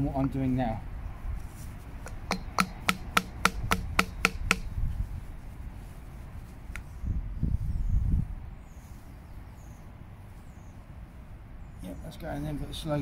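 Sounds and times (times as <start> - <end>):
hammer tapping with ringing note: 2.1 - 4.7.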